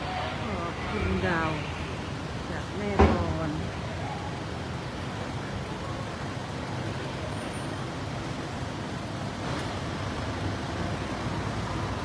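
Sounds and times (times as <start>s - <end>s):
car park rumble and hiss: 0.0s - 12.0s.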